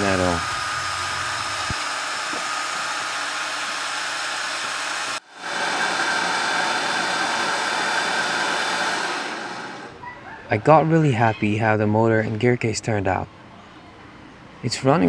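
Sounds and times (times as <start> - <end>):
milling machine motor whirring: 0.0 - 9.9.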